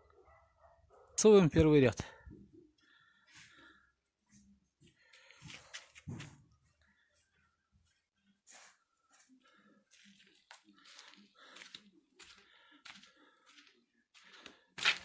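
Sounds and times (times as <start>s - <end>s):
footsteps crunching on sand: 8.5s - 15.0s.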